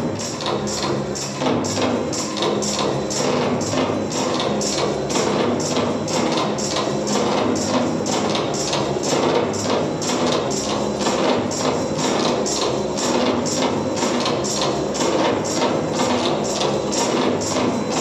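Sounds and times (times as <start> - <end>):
dance music with steady beat: 0.0 - 18.0.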